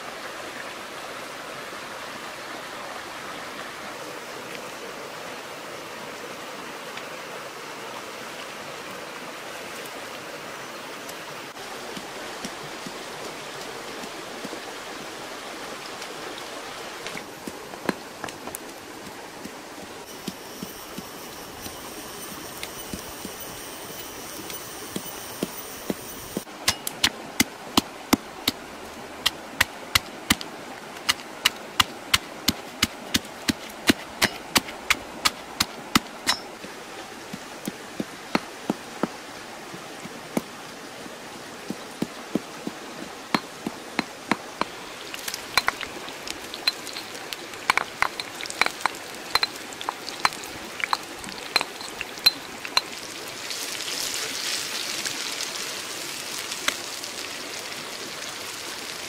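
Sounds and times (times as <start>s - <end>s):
paste sizzling in hot oil: 20.1s - 26.5s, 44.8s - 57.2s
pestle pounding in stone mortar: 31.0s - 36.6s, 43.4s - 52.9s.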